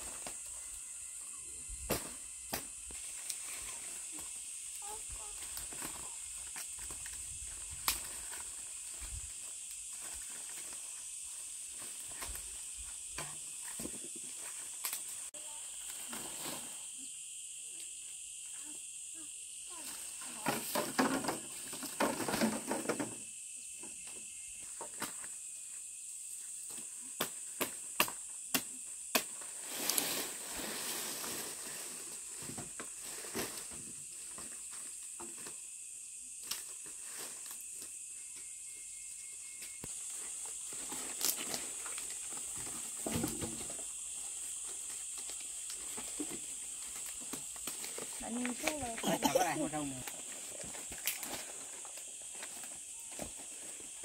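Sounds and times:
insects droning: 0.0s - 54.0s
palm fronds rustling and tearing: 5.2s - 11.0s, 39.9s - 43.6s, 50.0s - 54.0s.

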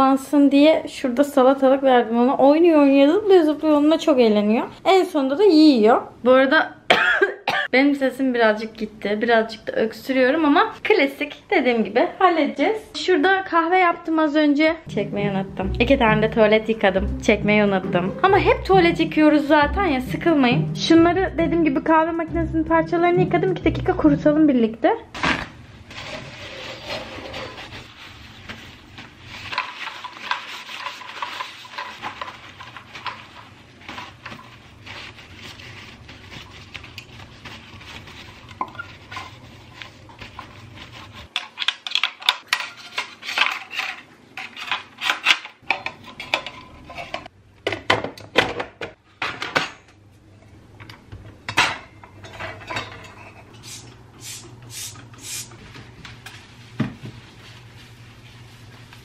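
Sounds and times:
paper towel rubbing and rustling: 25.9s - 41.3s, 55.2s - 59.0s.

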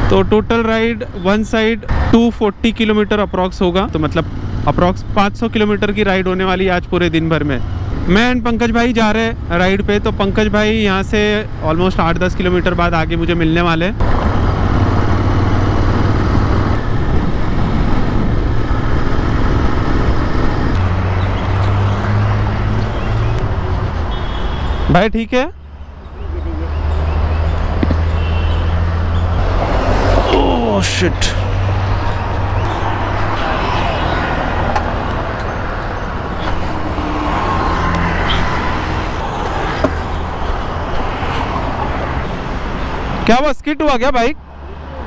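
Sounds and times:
wind rush: 14.0s - 23.8s, 29.3s - 42.3s.

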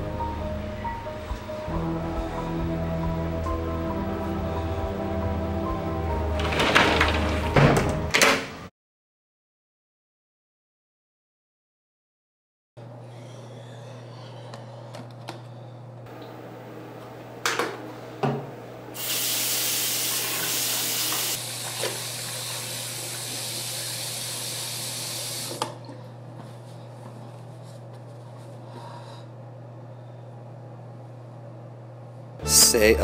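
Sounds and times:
steady low hum: 0.0s - 6.4s
water splashing and running: 19.0s - 25.6s.

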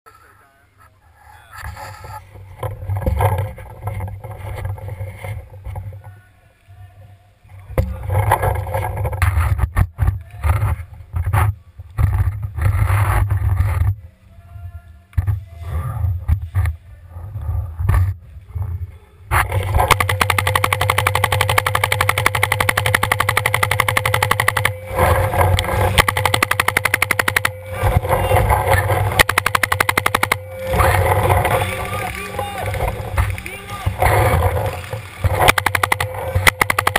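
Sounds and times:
gear knocking and rustling: 19.3s - 36.9s
paintball marker rapid firing: 19.3s - 36.9s.

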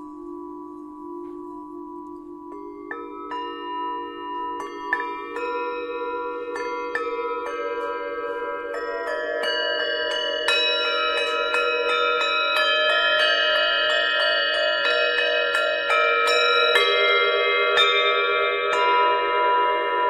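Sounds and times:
wavering hum: 0.0s - 15.6s
singing bowls struck ringing: 0.0s - 20.0s.

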